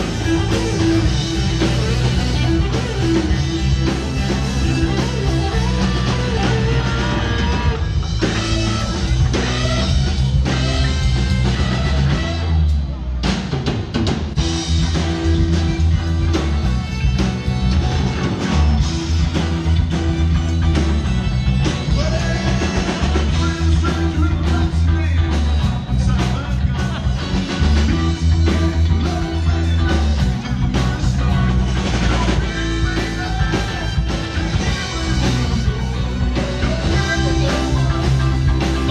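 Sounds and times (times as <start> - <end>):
live rock band playing: 0.0 - 38.9
person singing: 21.6 - 38.9.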